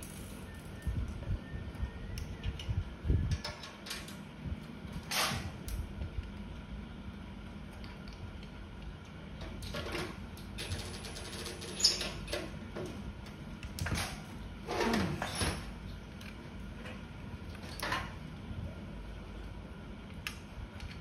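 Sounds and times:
metal scrape with falling squeak: 11.6 - 12.2.

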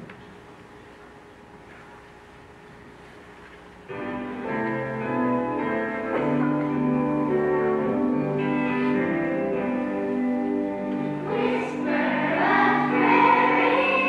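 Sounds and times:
low hiss: 0.0 - 14.0
orchestral chords: 3.9 - 14.0.

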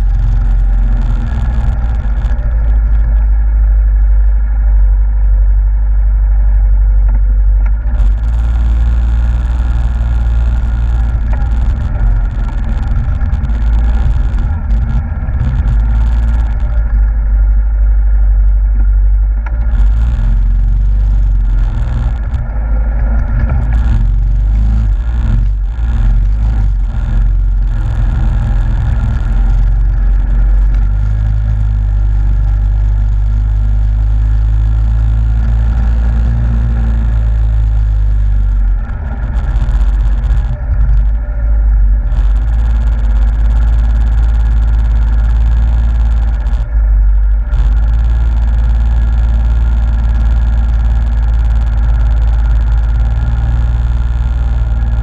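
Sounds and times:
atv engine running steadily: 0.0 - 55.0.

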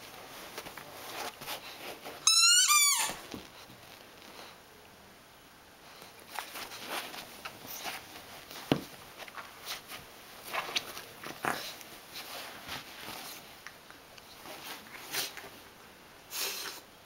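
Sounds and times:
rustling on couch: 0.0 - 2.3, 5.9 - 15.8.

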